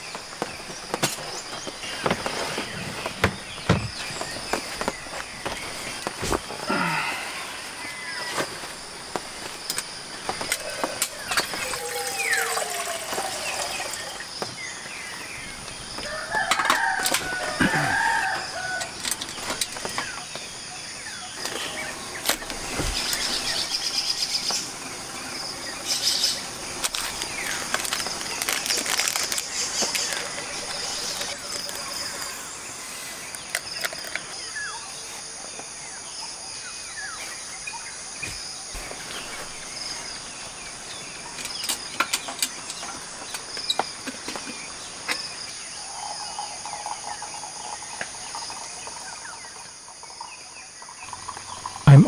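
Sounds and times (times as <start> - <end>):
rooster crowing: 16.0 - 19.0
paper sachet torn open: 26.9 - 30.2.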